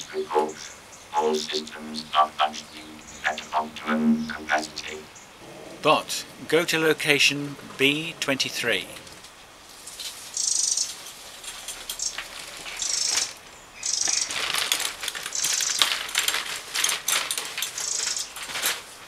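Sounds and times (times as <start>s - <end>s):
high chirping bleep: 1.2s - 5.1s
robot trolley rolling over pavement: 12.0s - 19.0s.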